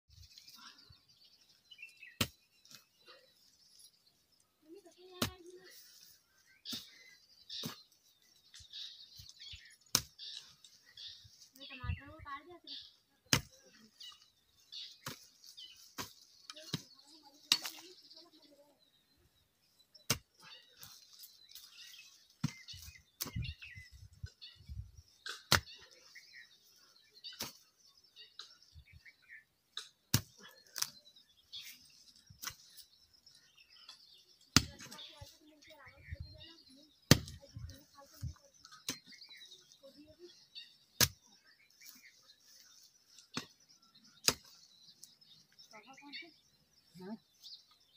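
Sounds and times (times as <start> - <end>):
birds chirping faintly: 0.1 - 47.9
hoe chopping into soil: 25.3 - 25.8, 29.8 - 30.9, 37.1 - 37.4, 41.0 - 41.2, 44.2 - 44.6.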